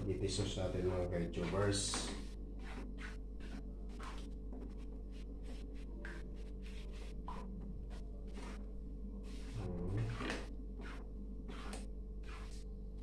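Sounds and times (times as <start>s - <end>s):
low hum: 0.0s - 13.0s
spatula scraping a pan: 0.6s - 5.6s, 9.2s - 12.6s.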